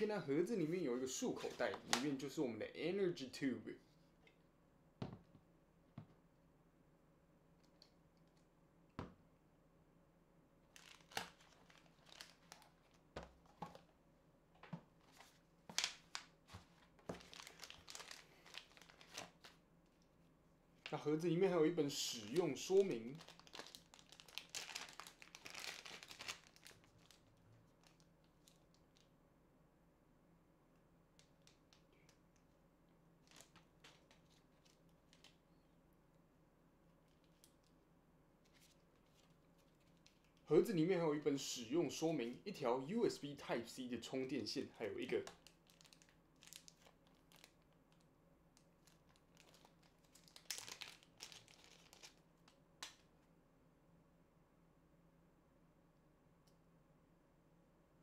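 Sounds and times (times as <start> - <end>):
plastic bag crinkling: 10.7 - 13.8, 15.1 - 19.6, 22.1 - 29.1, 33.2 - 35.4, 45.0 - 48.0, 48.8 - 53.0.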